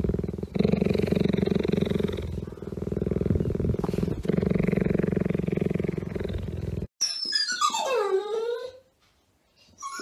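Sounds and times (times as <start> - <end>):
cheetah purring: 0.0 - 6.9.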